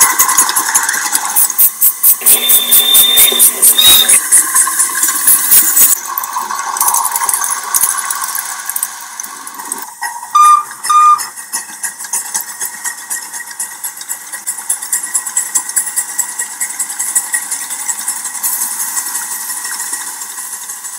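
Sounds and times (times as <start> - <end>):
rhythmic exhaust chuffing: 0.0 - 6.0, 9.9 - 20.9
steam locomotive whistle toots: 1.6 - 4.4, 10.0 - 11.4.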